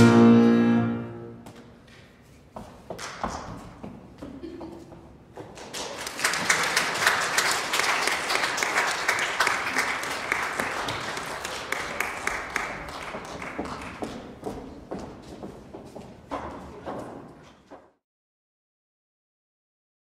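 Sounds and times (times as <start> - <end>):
audience applauding: 5.7 - 14.2.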